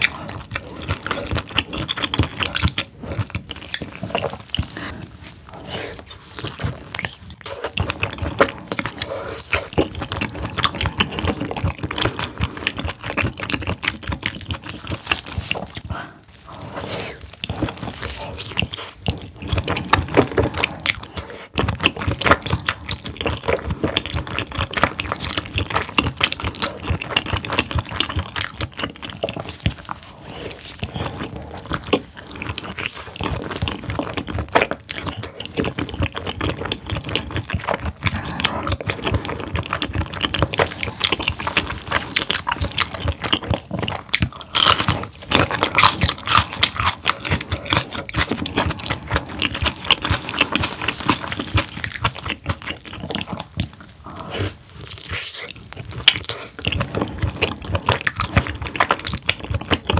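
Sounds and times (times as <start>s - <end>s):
wet chewing mouth sounds: 0.0s - 59.9s.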